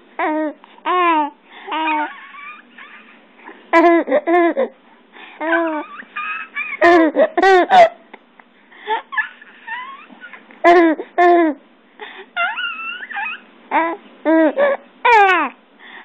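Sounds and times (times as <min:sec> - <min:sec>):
baby cooing and squealing: 0:00.2 - 0:03.2, 0:05.4 - 0:07.2, 0:09.1 - 0:11.0, 0:12.4 - 0:15.6.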